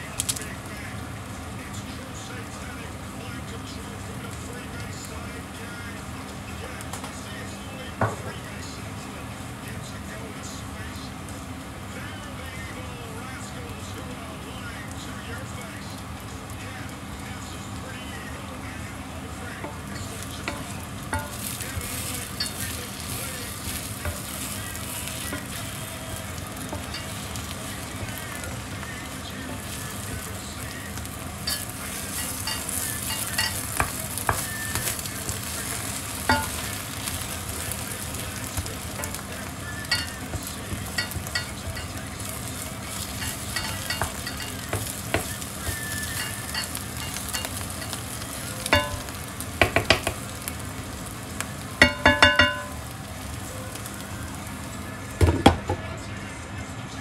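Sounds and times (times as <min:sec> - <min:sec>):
mushrooms sizzling in a pan: 0:00.0 - 0:55.8
utensil clinking against pan: 0:19.6 - 0:25.8, 0:26.6 - 0:30.2, 0:31.4 - 0:42.3, 0:42.9 - 0:48.0, 0:48.6 - 0:50.2, 0:51.8 - 0:52.8.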